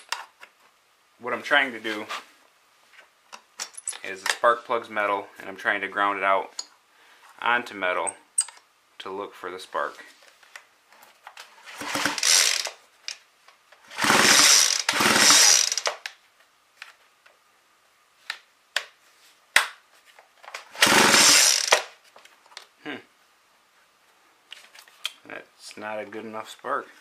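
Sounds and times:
chainsaw pull-starter yanked: 11.7 - 12.8, 14.0 - 16.1, 20.7 - 21.9.

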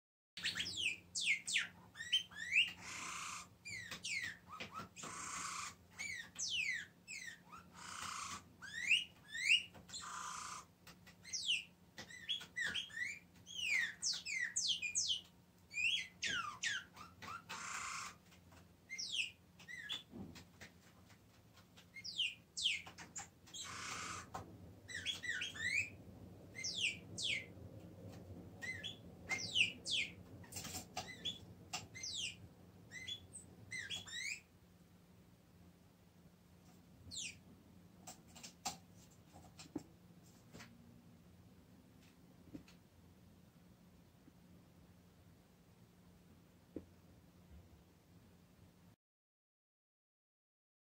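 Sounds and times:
songbird twittering song: 0.4 - 18.3, 18.9 - 20.1, 21.8 - 34.5, 37.1 - 37.4.

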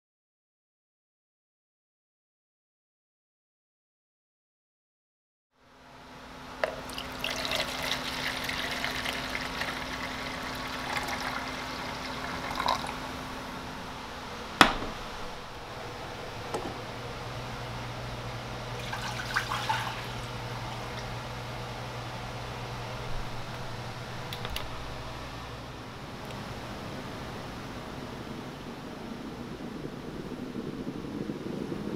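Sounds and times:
low hum: 5.6 - 31.9.

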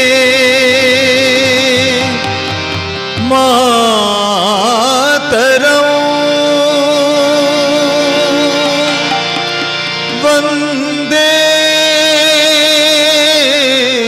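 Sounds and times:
man singing: 0.0 - 14.0
held instrumental notes: 0.9 - 4.2, 7.2 - 11.4.

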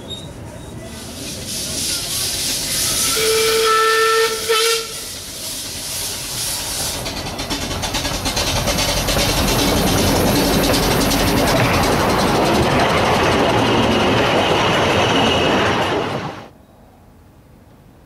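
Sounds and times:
steam hiss: 0.9 - 13.0
steam locomotive whistle: 1.5 - 6.9
locomotive exhaust beats: 1.7 - 15.8.

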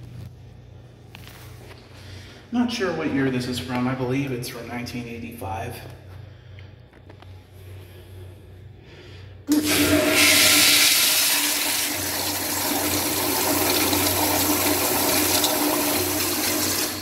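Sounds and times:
toilet flushing: 9.5 - 17.0.

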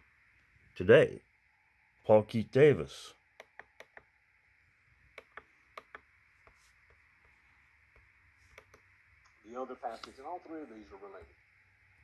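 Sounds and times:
computer mouse clicks: 3.4 - 4.1, 5.1 - 9.4.

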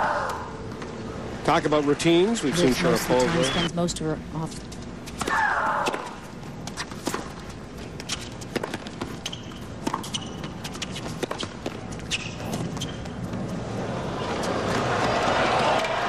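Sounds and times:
tennis ball bouncing: 6.7 - 13.2
shoe squeaks: 8.0 - 13.3.

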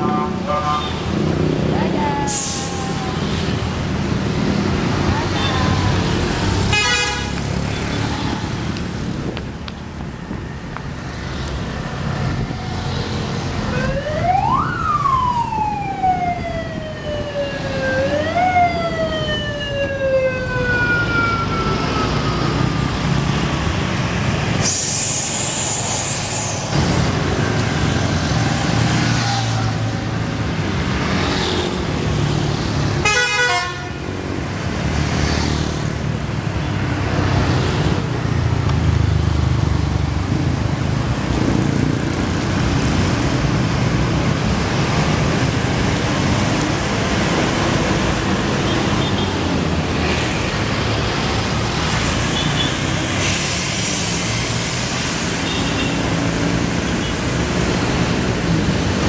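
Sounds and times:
bus engine: 0.0 - 13.9, 21.5 - 59.0
street traffic: 0.0 - 59.0
loud air hiss: 2.2 - 2.9, 24.5 - 27.1, 53.0 - 55.6
siren wailing: 13.7 - 23.2.

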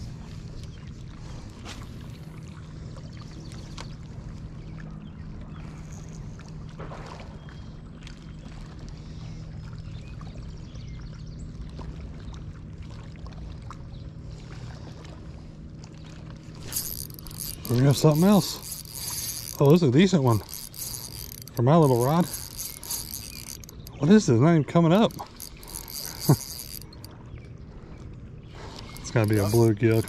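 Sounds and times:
boat motor humming: 0.0 - 30.0
faint clicks: 16.6 - 24.2, 25.0 - 27.1.

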